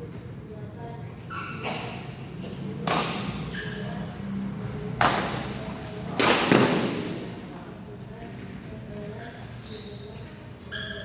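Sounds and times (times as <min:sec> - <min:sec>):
shoe squeak: 0:01.2 - 0:02.1, 0:03.4 - 0:04.2, 0:09.1 - 0:11.0
racket hitting shuttlecock: 0:06.2 - 0:07.1.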